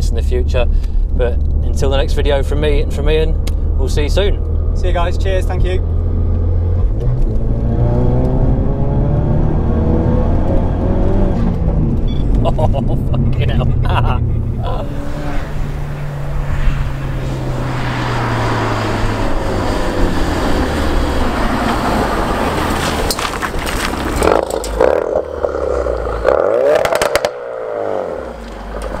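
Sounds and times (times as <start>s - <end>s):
exhaust cracks: 0.0s - 8.4s, 10.3s - 29.0s
car engine revving: 0.2s - 29.0s.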